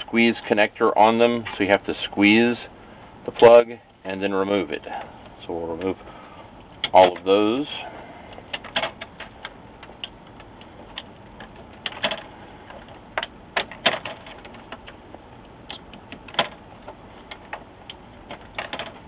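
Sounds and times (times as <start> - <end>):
fingers on sheet-metal chassis: 8.3 - 19.0.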